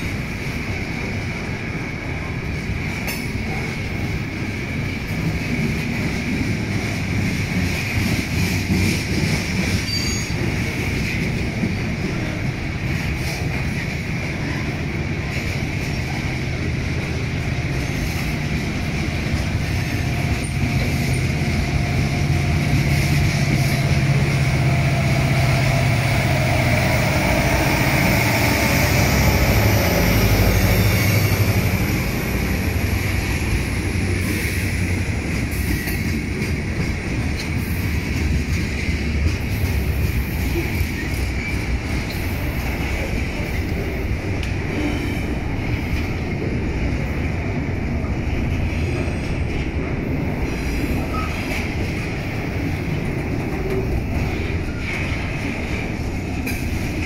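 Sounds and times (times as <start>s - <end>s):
steel wheels rumbling on rail: 0.0s - 57.0s
high wheel squeal: 9.8s - 10.6s.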